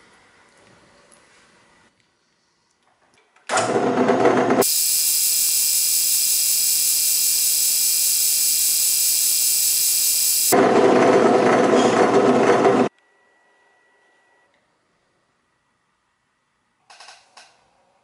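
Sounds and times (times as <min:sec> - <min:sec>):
drill press drilling metal: 0:03.5 - 0:10.6
high hissing whine: 0:04.6 - 0:10.6.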